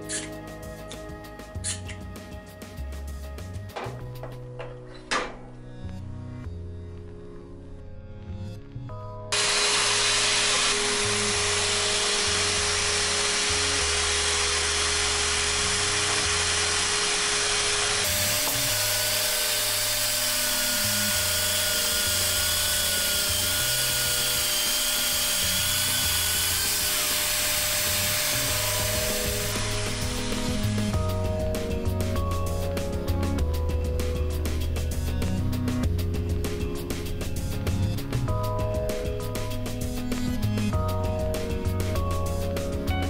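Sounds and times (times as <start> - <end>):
background music: 0.0 - 43.0
pneumatic drill hissing and whining: 9.3 - 32.5.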